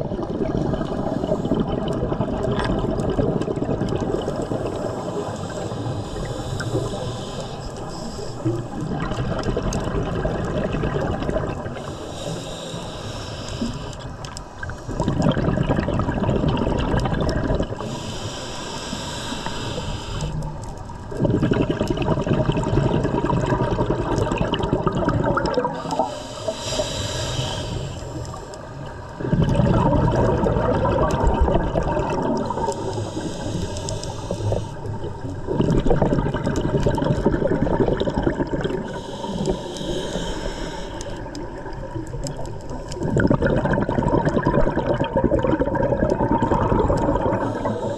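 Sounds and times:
exhaled bubbles gushing: 0.0 - 12.3, 13.6 - 18.1, 20.2 - 26.6, 28.0 - 40.3, 41.1 - 47.9
diver inhaling through regulator: 4.4 - 8.9, 11.7 - 15.6, 17.6 - 21.9, 25.2 - 29.6, 32.2 - 35.3, 38.0 - 41.8, 46.3 - 47.9.

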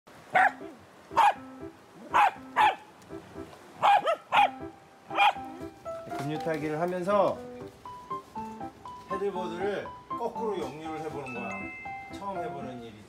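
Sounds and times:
dog barking: 0.3 - 1.4, 2.0 - 2.8, 3.8 - 5.5.

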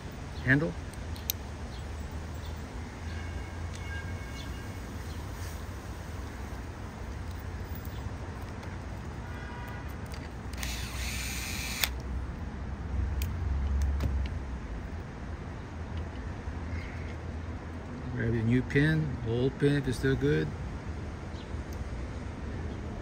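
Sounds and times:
rustle: 0.0 - 12.2.

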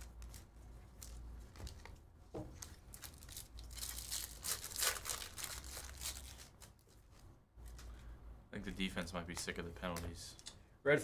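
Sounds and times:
foil wrapper tearing: 2.9 - 6.8.

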